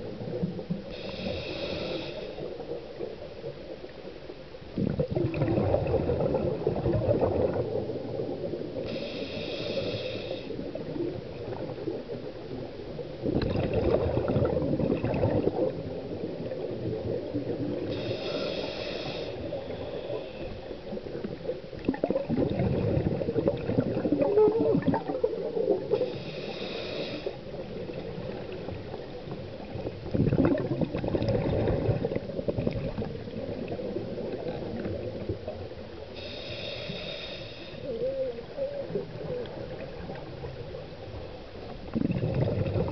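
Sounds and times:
scuba regulator hissing inhale: 0.9s - 2.6s, 8.8s - 10.8s, 17.8s - 20.7s, 25.9s - 27.5s, 36.1s - 38.0s
exhaled air bubbling: 4.6s - 42.9s.

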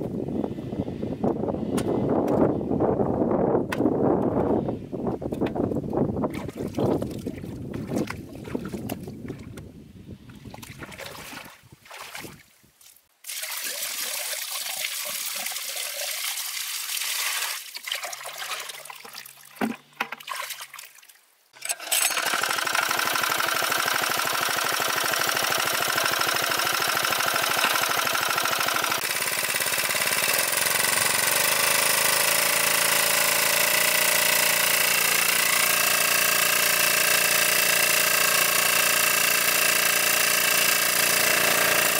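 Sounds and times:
water trickling and splashing: 10.3s - 21.3s
water pump engine running: 21.6s - 41.9s.

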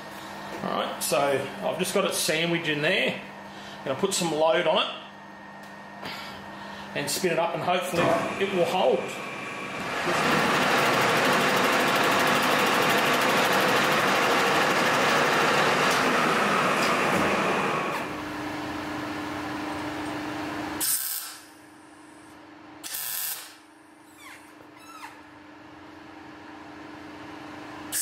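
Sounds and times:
metal lathe running: 8.0s - 18.2s.

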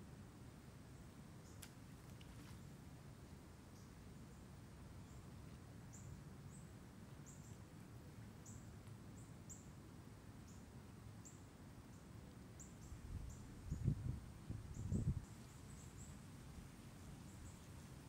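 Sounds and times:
small bird chirping: 10.4s - 16.2s.

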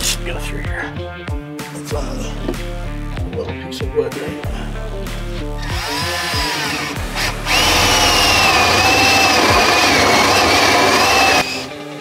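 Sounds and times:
cordless drill whining: 5.6s - 11.9s.

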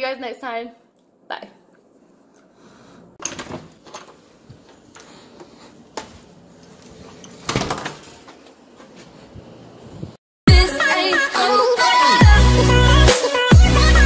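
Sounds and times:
front door pulled shut: 7.4s - 8.2s.

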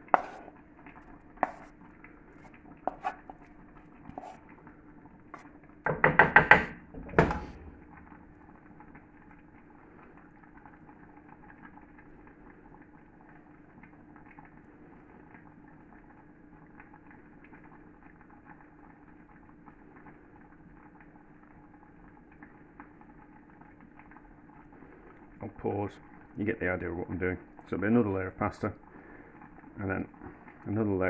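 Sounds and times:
faint steady hum: 0.0s - 31.0s
spoon knocking on a pan: 1.4s - 1.7s, 2.9s - 3.3s, 5.8s - 7.6s.

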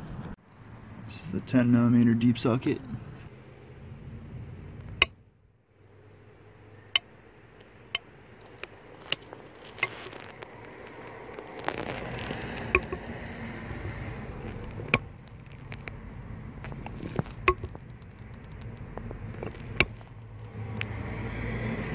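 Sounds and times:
rustling handling noise: 7.6s - 13.0s, 14.4s - 20.2s.

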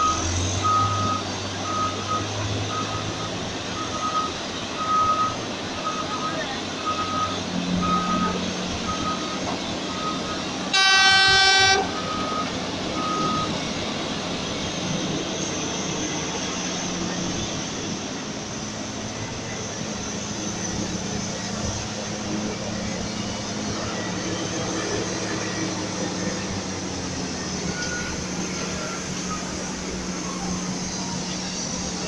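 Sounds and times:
reversing alarm beeping: 0.0s - 13.9s, 27.4s - 32.0s
diesel engine running: 0.0s - 32.0s
loud horn blast: 10.7s - 12.0s.

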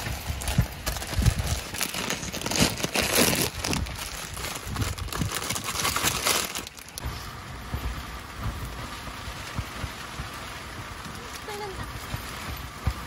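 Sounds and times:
rain on car roof: 0.0s - 13.0s
raindrops tapping: 0.0s - 13.0s
snack bag crinkling: 0.3s - 7.0s.

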